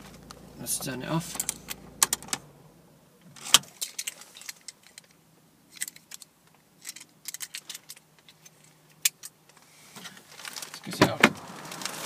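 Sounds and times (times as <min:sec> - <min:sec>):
keys rattling in hand: 0:06.8 - 0:09.3.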